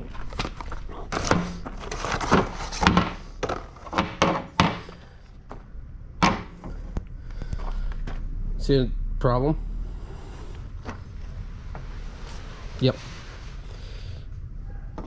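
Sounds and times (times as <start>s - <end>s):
tools and hard parts clunking: 0.0s - 7.0s.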